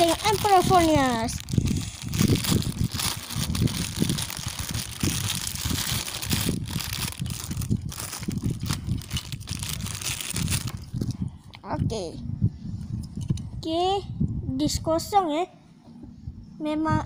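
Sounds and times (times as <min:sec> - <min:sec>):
plastic bag crinkling: 0:00.0 - 0:11.1.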